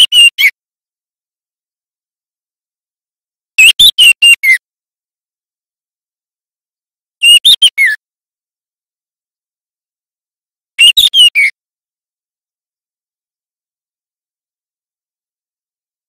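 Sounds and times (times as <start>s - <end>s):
bird singing short phrases: 10.8s - 11.6s.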